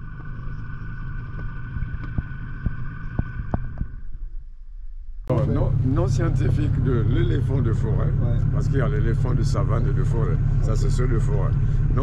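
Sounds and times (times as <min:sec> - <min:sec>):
outboard motor running: 0:00.0 - 0:04.1, 0:05.3 - 0:12.0
motor whine: 0:00.0 - 0:04.4.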